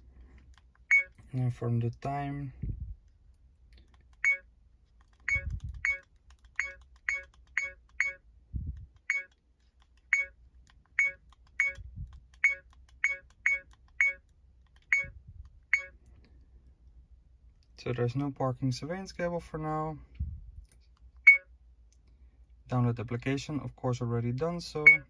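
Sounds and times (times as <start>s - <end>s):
short electronic beeps: 0.9s - 1.2s, 4.2s - 4.4s, 5.3s - 6.0s, 6.6s - 8.2s, 9.1s - 9.3s, 10.1s - 10.4s, 11.0s - 11.8s, 12.4s - 14.2s, 14.9s - 15.9s, 21.3s - 21.5s.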